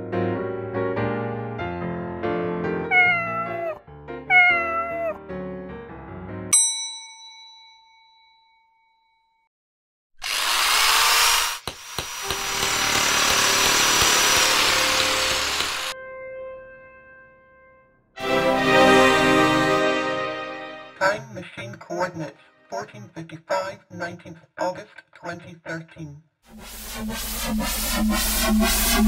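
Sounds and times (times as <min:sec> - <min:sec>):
piano music: 0:00.0 - 0:06.6, 0:14.4 - 0:21.1
cat meowing: 0:02.9 - 0:05.2
bell-like ding: 0:06.5 - 0:09.4.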